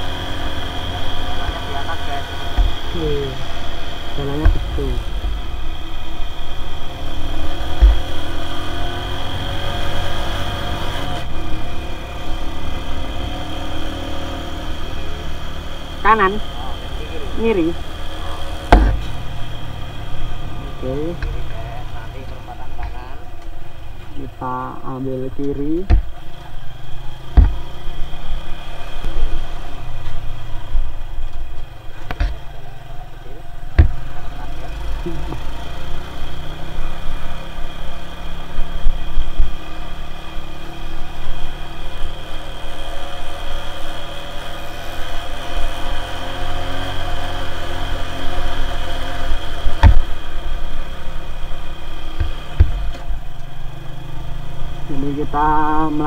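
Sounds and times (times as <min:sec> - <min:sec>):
motor scooter engine running: 0:00.0 - 0:56.0
low thump: 0:04.4 - 0:05.4, 0:07.7 - 0:08.2, 0:18.7 - 0:19.3, 0:27.3 - 0:27.8, 0:33.8 - 0:34.1, 0:52.2 - 0:53.0.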